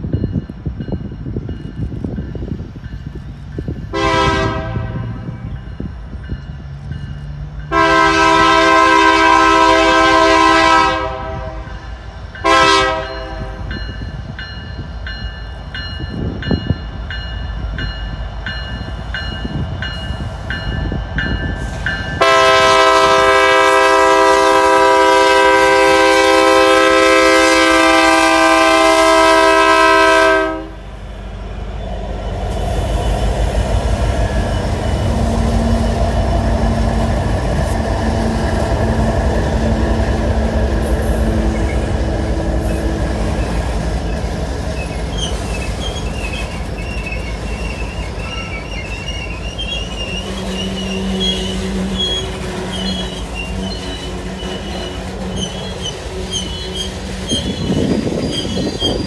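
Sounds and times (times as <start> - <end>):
locomotive rumble: 0.0 - 59.0
train rolling on rails: 0.0 - 59.0
diesel locomotive horn blasts: 3.9 - 5.5, 7.6 - 13.8, 21.6 - 31.0, 32.3 - 44.2, 44.8 - 58.8.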